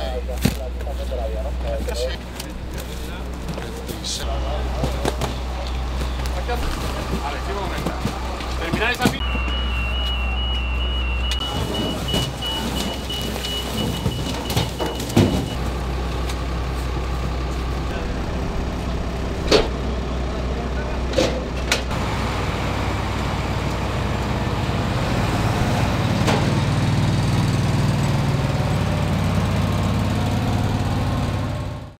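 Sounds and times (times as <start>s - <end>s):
constant low hum: 0.0s - 29.0s
truck engine idling: 0.0s - 32.0s
cartons knocking: 4.8s - 9.6s, 11.4s - 15.6s.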